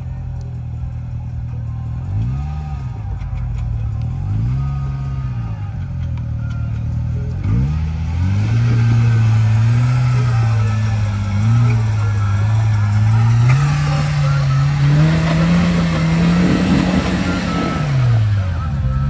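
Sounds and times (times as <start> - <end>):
utility vehicle engine revving: 0.0 - 19.0.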